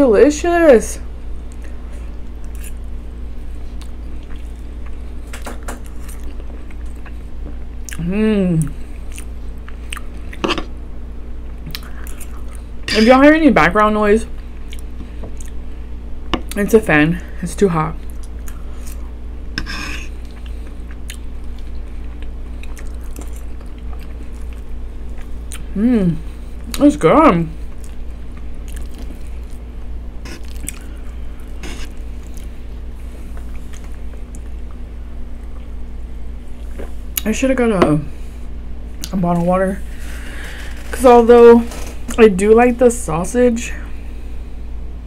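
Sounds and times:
electric fan humming: 0.0 - 45.0
chewing and mouth sounds: 1.4 - 10.5, 11.6 - 12.8, 14.4 - 15.6, 20.0 - 25.7, 27.6 - 29.7, 30.3 - 34.8
fork squishing into baked potato: 30.2 - 32.5.

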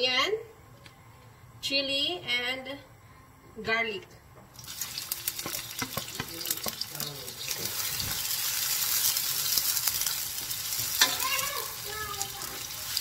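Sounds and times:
vegetables sizzling in hot oil: 4.5 - 13.0
wooden spatula scraping and tapping: 5.3 - 8.2.

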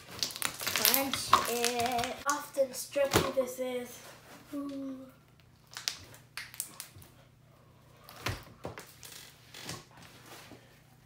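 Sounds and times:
slime clicking and popping: 5.7 - 7.0.

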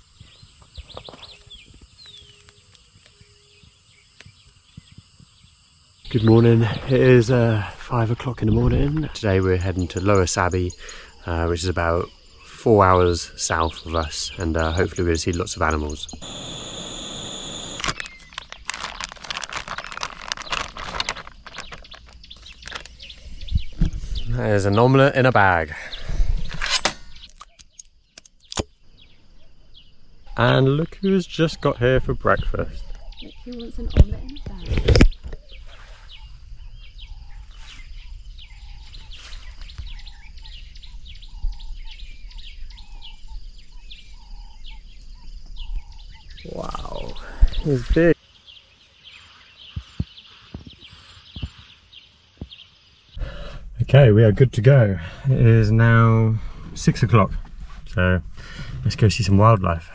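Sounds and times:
small birds chirping and whistling: 0.0 - 53.2
faint high insect hum: 0.0 - 57.3
plastic bag crinkling: 17.8 - 23.0
low bird call: 32.8 - 53.4.

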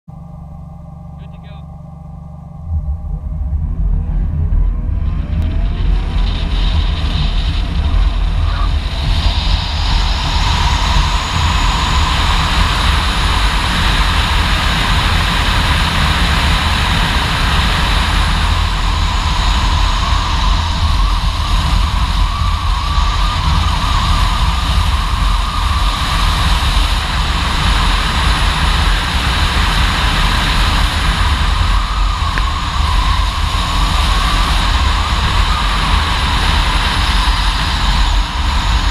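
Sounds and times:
electric motor whine: 0.1 - 38.9
wind and road noise: 2.6 - 38.9.

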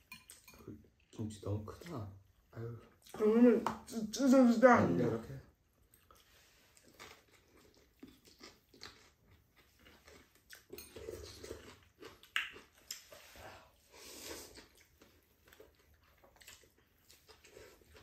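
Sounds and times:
noodles being slurped and chewed: 5.9 - 18.0.

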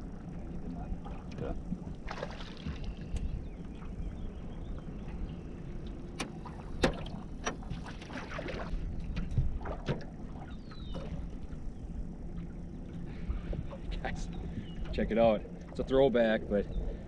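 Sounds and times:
low wind rumble on microphone: 0.0 - 17.0.

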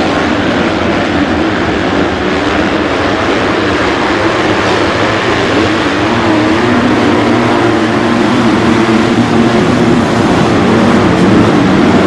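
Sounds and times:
motocross engines revving: 0.0 - 12.0.

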